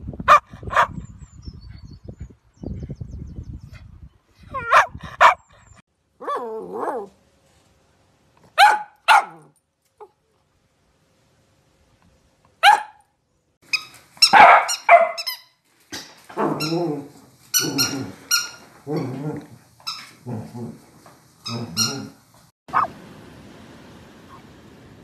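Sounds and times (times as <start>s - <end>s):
dogs barking: 0.3s - 1.0s, 4.6s - 5.5s, 8.6s - 9.5s, 12.6s - 13.0s, 14.3s - 15.3s, 22.7s - 22.9s.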